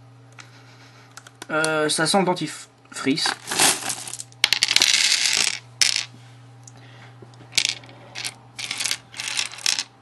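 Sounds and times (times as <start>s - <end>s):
steady low hum: 0.0s - 10.0s
plastic pack rattling and crinkling: 3.2s - 5.5s.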